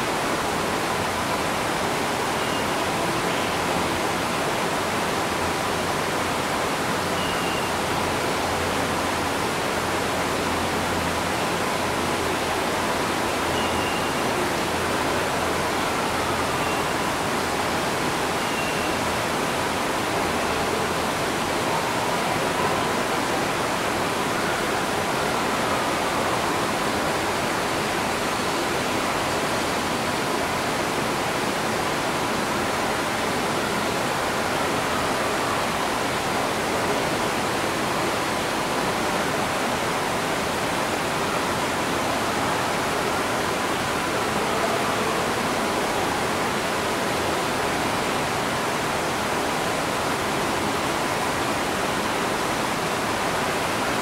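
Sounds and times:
waterfall rushing: 0.0 - 54.0
faint bird whistles: 7.2 - 7.7, 13.6 - 14.2, 18.4 - 19.0.

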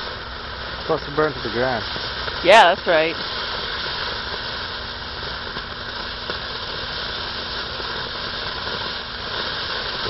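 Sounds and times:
firework hissing: 0.0 - 10.0.

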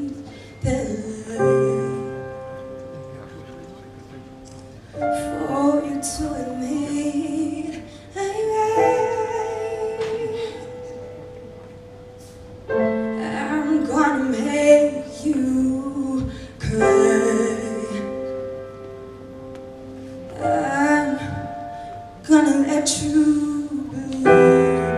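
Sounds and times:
woman singing slow melody: 0.0 - 2.5, 5.0 - 11.2, 13.0 - 18.7, 20.3 - 24.9
soft musical accompaniment: 0.0 - 24.9.

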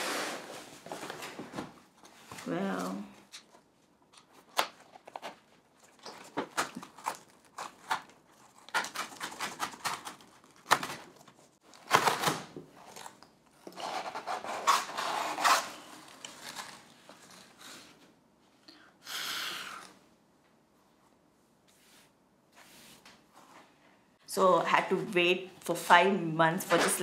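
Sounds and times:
packaging being opened by hand: 2.8 - 18.0.

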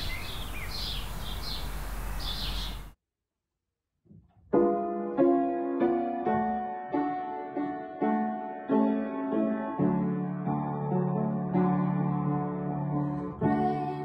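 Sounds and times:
birds chirping: 0.0 - 3.0
piano chords: 4.4 - 14.0.

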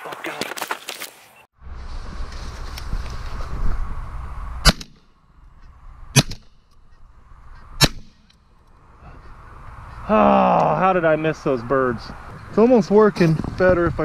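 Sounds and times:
rustling: 0.0 - 3.8
wind noise: 1.6 - 7.9, 11.1 - 14.0
shotgun shots: 6.2 - 6.5.

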